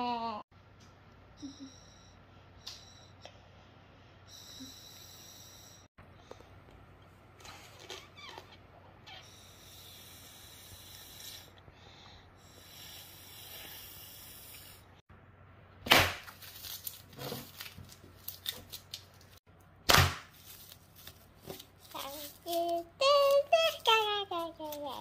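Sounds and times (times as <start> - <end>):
plastic film crackling: 16.2 - 19.4, 20.3 - 25.0.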